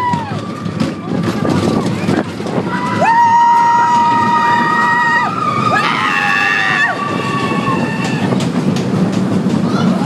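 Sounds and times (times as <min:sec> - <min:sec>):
roller coaster rumbling on track: 0:00.0 - 0:10.0
riders screaming: 0:02.7 - 0:08.4.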